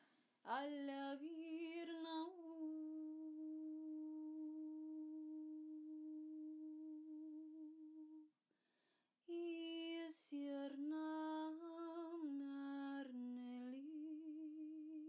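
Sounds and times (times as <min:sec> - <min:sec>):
woman singing without words: 0:00.0 - 0:08.2, 0:09.3 - 0:15.0.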